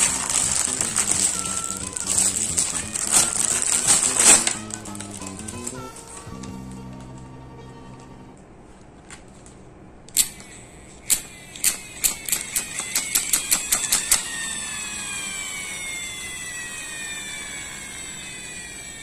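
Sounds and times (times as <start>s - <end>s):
toy truck gears clicking: 0.0s - 6.3s, 10.2s - 19.0s
whine of spinning wheels: 0.0s - 7.5s, 10.4s - 19.0s.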